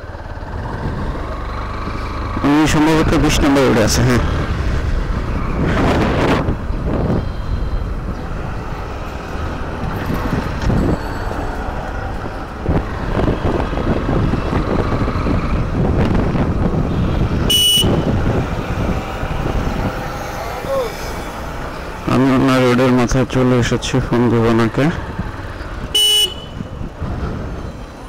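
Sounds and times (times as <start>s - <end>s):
motorcycle engine: 0.0s - 28.0s
road noise: 0.0s - 28.0s
wind buffeting microphone: 0.5s - 1.6s, 4.4s - 22.1s, 24.9s - 28.0s.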